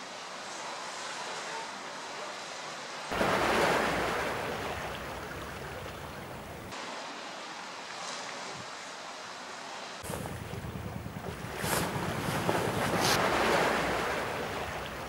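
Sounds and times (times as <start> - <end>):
sea noise: 0.0 - 15.0
wind: 0.0 - 15.0
wind rumbling on microphone: 10.0 - 15.0.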